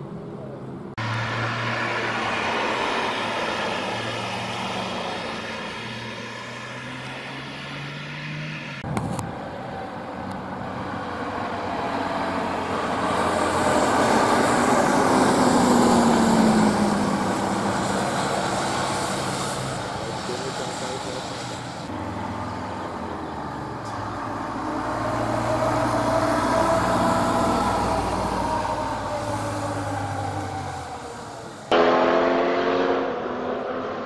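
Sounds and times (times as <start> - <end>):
bus and car driving by: 0.0 - 34.0
car engine driving past: 0.9 - 8.8, 23.8 - 34.0.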